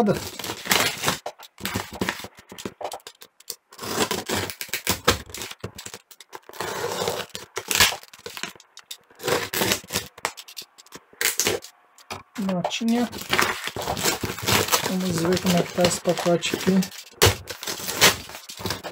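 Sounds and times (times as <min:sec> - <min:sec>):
tape and paper ripping: 0:00.0 - 0:18.9
utility knife slitting tape and cardboard: 0:00.3 - 0:11.8, 0:12.8 - 0:18.9.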